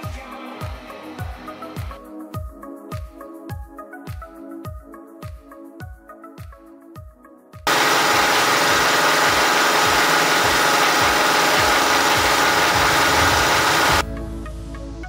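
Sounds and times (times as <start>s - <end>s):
loud humming mechanical noise: 7.7s - 14.0s.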